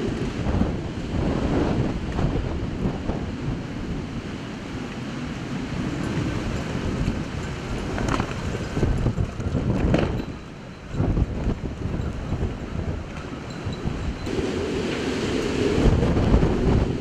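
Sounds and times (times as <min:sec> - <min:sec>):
rushing floodwater: 0:00.0 - 0:17.0
wind gusting over microphone: 0:00.0 - 0:17.0.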